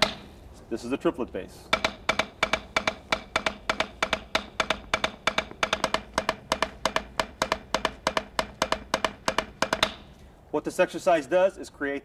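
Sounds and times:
drumsticks tapping practice pad: 0.0 - 0.3, 1.7 - 10.1.

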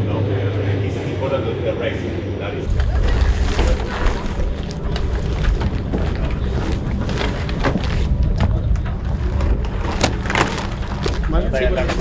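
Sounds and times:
wind buffeting microphone: 2.6 - 12.0
knocks and rustles of gear: 3.0 - 12.0.

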